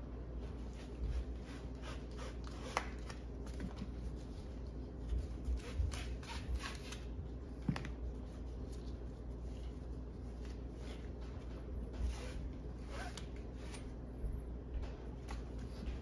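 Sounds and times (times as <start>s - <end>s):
steady low hum: 0.0s - 16.0s
gloved hands rustling webbing: 1.6s - 14.0s.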